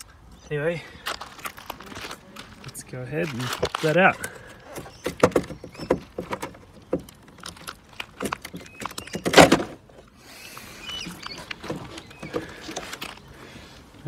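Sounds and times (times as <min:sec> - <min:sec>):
short plastic squeaks: 0:03.2 - 0:13.3
plastic clicks and knocks: 0:03.5 - 0:09.8.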